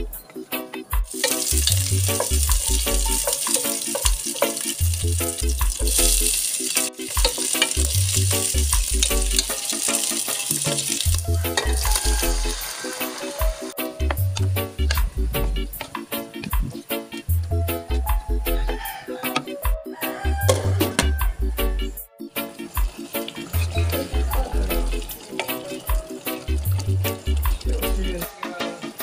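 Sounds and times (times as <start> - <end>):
background music with beat: 0.0 - 29.0
food sizzling in oil: 1.1 - 17.4, 22.3 - 29.0
wooden spatula stirring: 1.2 - 6.5.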